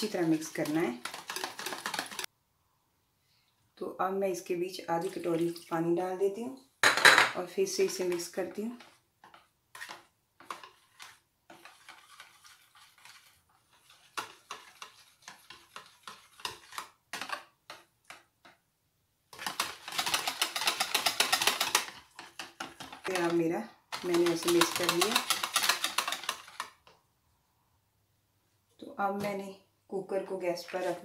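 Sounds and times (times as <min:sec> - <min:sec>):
whisk beating in plastic tub: 0:00.0 - 0:02.3, 0:07.6 - 0:18.2, 0:19.4 - 0:26.9.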